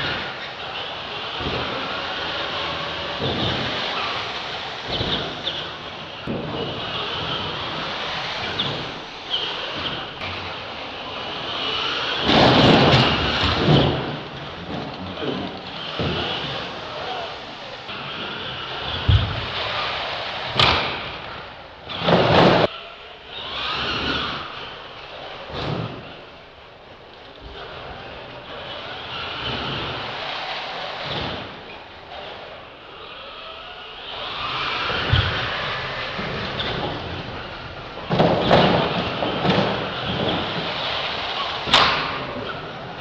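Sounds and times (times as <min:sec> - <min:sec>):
toy truck thudding on ramps: 0:00.0 - 0:17.3, 0:17.9 - 0:26.3, 0:27.2 - 0:32.6, 0:34.0 - 0:43.0
loud noisy crash: 0:00.0 - 0:22.8.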